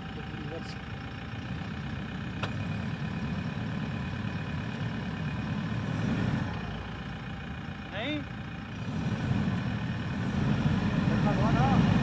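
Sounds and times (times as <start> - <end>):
car engine revving hard: 8.8 - 12.0.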